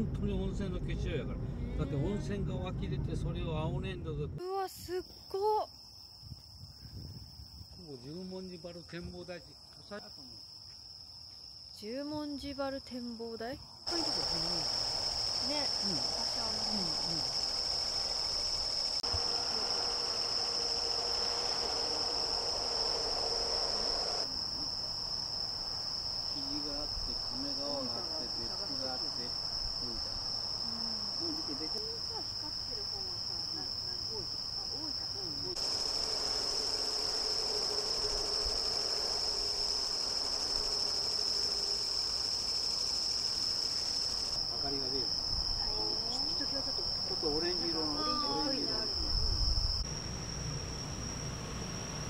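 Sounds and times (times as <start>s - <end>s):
night insects trilling: 4.4s - 52.0s.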